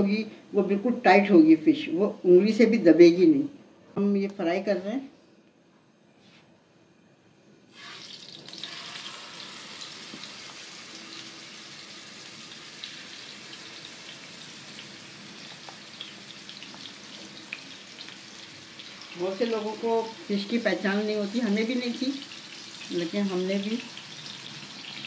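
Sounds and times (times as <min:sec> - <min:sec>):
fish sizzling in hot oil: 0:07.7 - 0:25.0.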